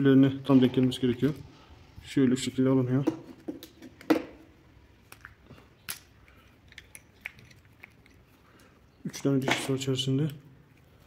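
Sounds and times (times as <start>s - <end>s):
small clicks and knocks of parts: 5.0s - 11.0s.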